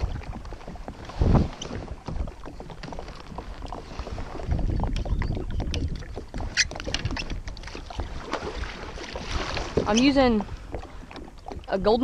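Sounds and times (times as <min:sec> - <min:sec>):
water sloshing against a hull: 0:00.0 - 0:12.0
wind rumbling on microphone: 0:00.0 - 0:12.0.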